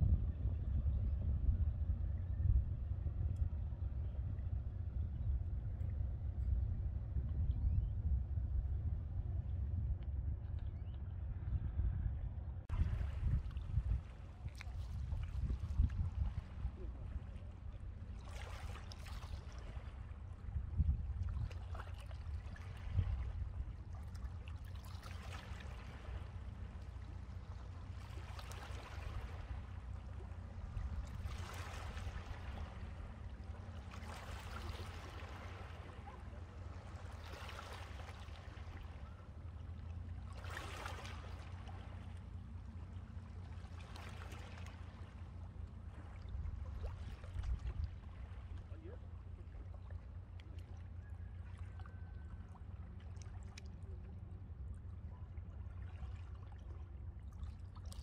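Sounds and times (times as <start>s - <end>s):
steady low rumble: 0.0s - 58.0s
small waves washing on shore: 12.7s - 58.0s.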